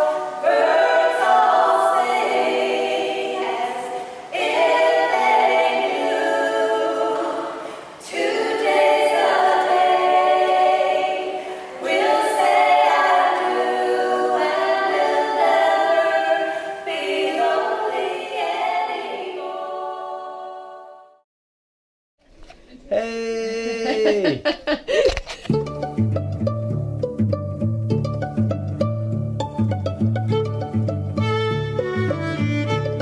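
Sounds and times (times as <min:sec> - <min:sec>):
choir singing a cappella: 0:00.0 - 0:21.2.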